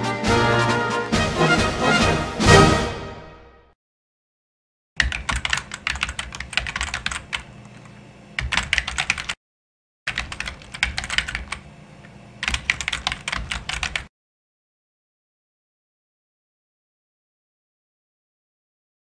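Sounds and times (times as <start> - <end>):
rapid keyboard typing clicks: 5.0 - 9.4, 10.1 - 14.1.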